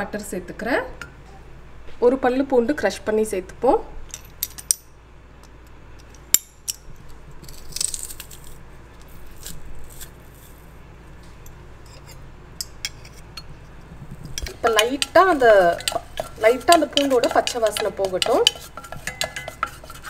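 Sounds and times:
garlic clove crunching: 0:07.4 - 0:10.7.

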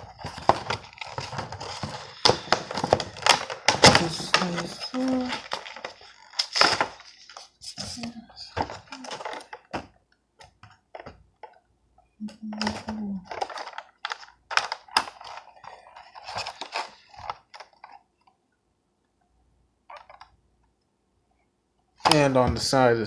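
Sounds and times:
plastic packaging crinkling: 0:00.0 - 0:09.9, 0:12.4 - 0:18.3.

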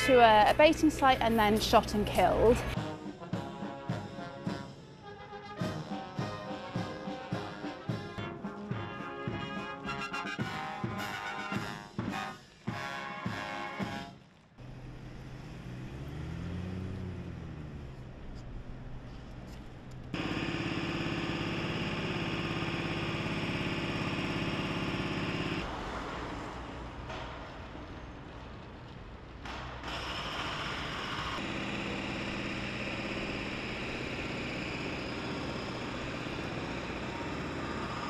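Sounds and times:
vehicle engine hum: 0:14.3 - 0:38.0.

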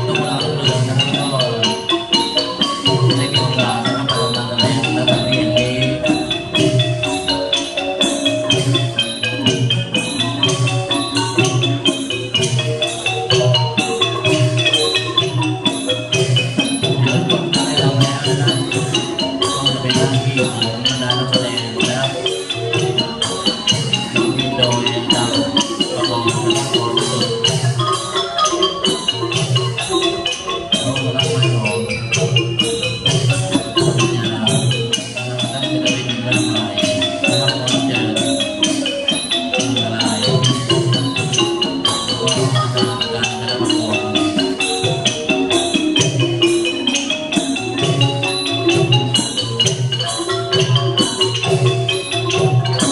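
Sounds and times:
steady drum beat: 0:00.0 - 0:22.1
mallet-struck melody: 0:00.0 - 0:52.9
percussion: 0:00.0 - 0:52.9
wooden xylophone quick notes: 0:00.0 - 0:52.9.

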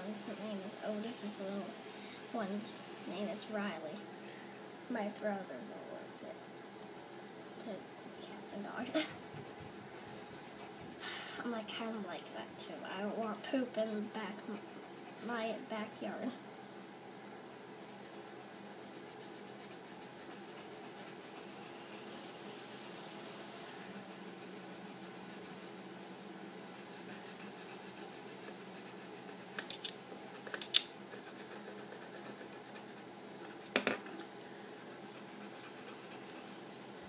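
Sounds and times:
pencil scratching on paper: 0:08.8 - 0:11.0, 0:17.8 - 0:33.2, 0:34.8 - 0:36.9.

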